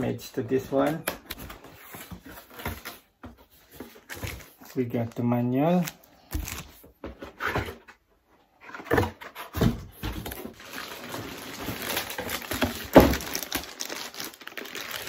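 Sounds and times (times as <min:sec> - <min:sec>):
plastic wrapping rustling: 0:10.1 - 0:15.0.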